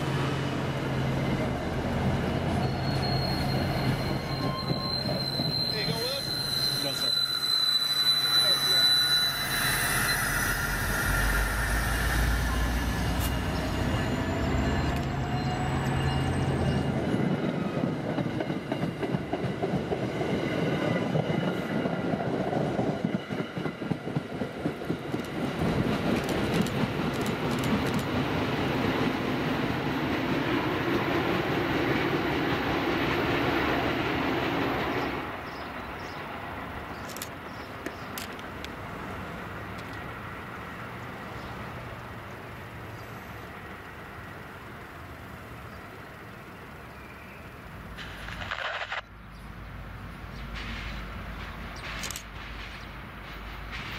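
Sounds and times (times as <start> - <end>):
distant train rumble: 0.0 - 53.9
train wheels clicking over joints: 21.0 - 29.2, 50.4 - 53.9.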